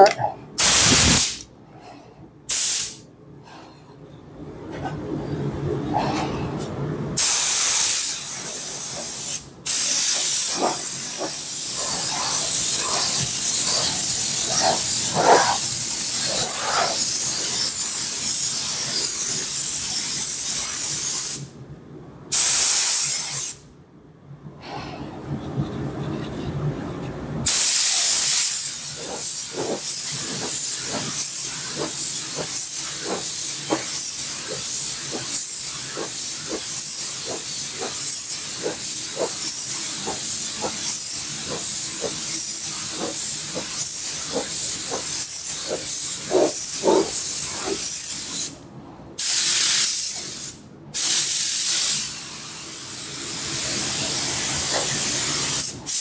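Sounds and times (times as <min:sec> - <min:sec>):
paint spray gun hissing: 0:00.6 - 0:01.4, 0:02.5 - 0:03.0, 0:07.2 - 0:21.4, 0:27.5 - 0:48.5, 0:49.2 - 0:56.0.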